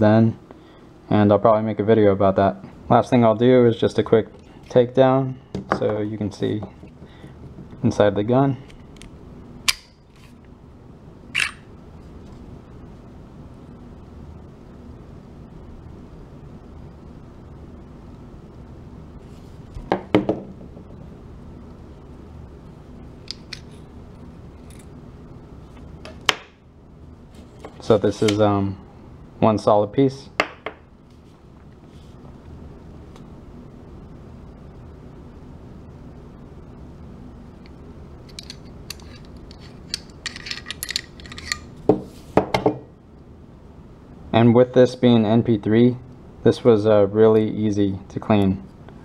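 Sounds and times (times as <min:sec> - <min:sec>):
metal pistol parts clicking: 0:11.4 - 0:11.6, 0:38.3 - 0:41.7.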